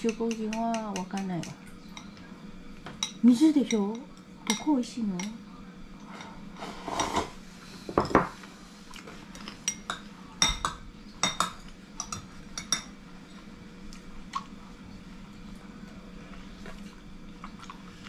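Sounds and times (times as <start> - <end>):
chopsticks clinking on bowls: 9.3 - 13.5.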